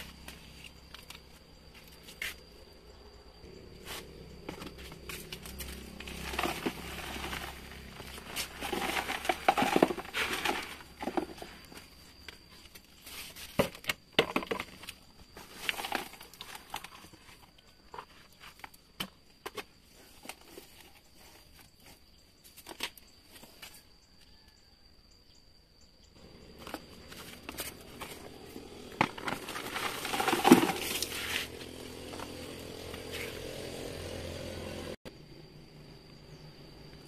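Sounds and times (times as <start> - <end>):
bucket knocks and clicks: 6.2 - 11.5, 13.6 - 14.8, 28.9 - 31.1.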